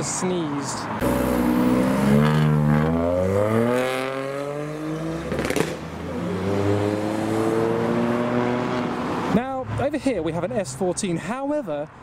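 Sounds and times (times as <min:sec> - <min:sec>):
car engine accelerating hard: 0:01.0 - 0:09.1
sharp crack: 0:05.3 - 0:05.8.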